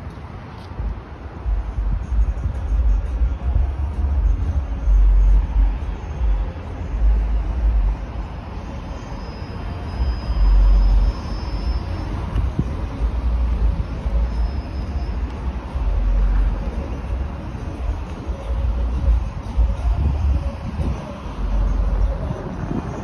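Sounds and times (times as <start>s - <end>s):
road traffic passing: 0.0s - 23.0s
heavy low rumble: 0.8s - 8.2s, 12.1s - 23.0s.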